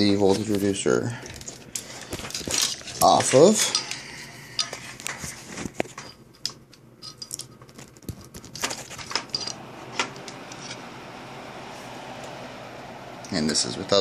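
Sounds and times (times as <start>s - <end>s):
cables and connectors clicking: 1.2s - 10.9s
computer fan whooshing: 8.9s - 14.0s.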